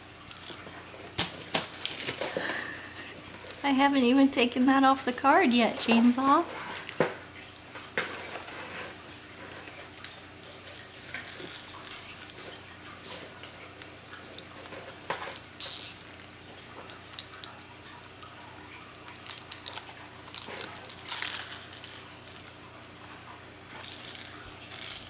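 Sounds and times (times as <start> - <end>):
packaging and paper rustling: 0.3 - 4.7.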